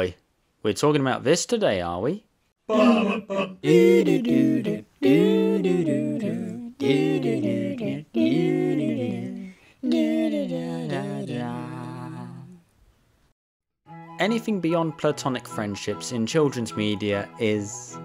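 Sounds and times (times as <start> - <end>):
man humming a tune: 2.7 - 10.2.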